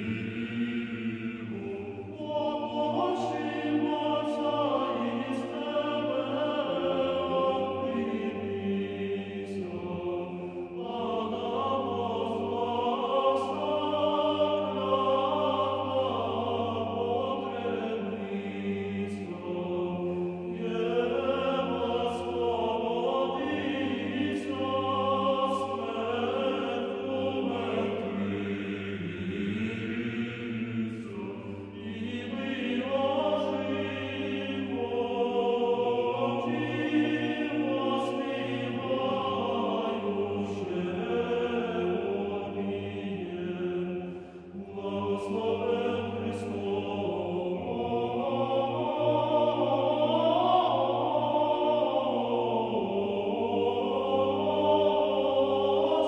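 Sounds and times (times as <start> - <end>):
choir singing a chant: 0.0 - 56.0.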